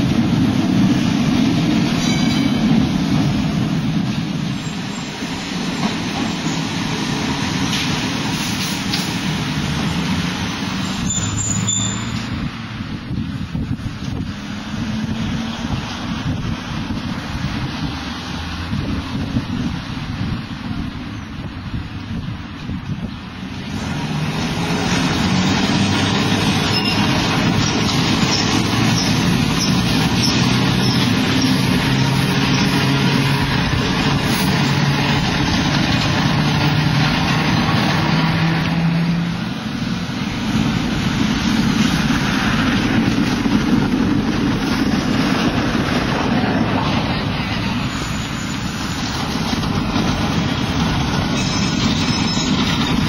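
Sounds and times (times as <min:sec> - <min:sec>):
road and rail noise: 0:00.0 - 0:53.0
tram motor hum: 0:12.2 - 0:53.0.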